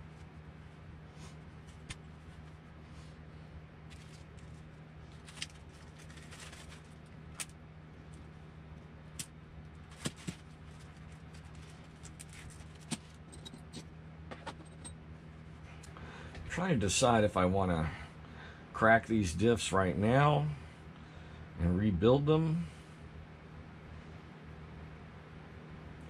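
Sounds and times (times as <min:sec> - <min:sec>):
faint steady hum: 0:00.0 - 0:26.0
metal tools clinking on mat: 0:12.4 - 0:15.0.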